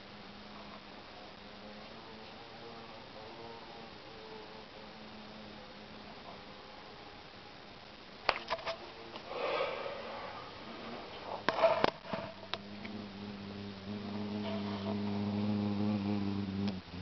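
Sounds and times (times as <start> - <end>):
insect wing buzz: 9.2 - 17.0.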